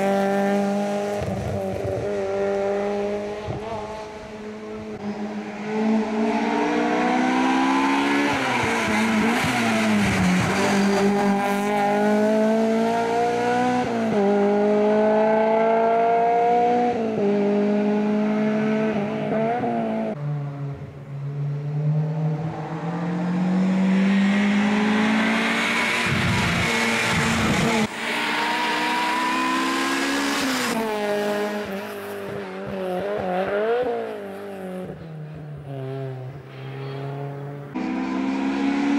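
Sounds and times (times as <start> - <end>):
race car engine accelerating: 0.0 - 35.1, 37.0 - 38.9.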